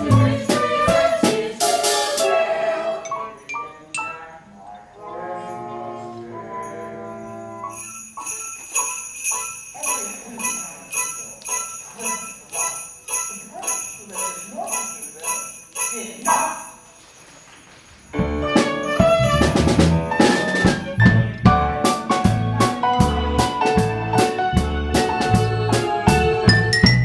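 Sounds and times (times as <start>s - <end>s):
band playing drums and percussion: 0.0s - 2.3s, 18.2s - 27.0s
jingle bells shaken: 6.6s - 19.6s
faint voices: 9.7s - 16.8s.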